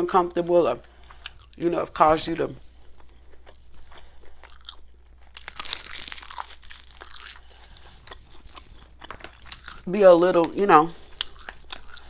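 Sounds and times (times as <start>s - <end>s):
seaweed crunching being chewed: 0.8s - 1.6s, 2.7s - 9.9s, 11.0s - 12.0s.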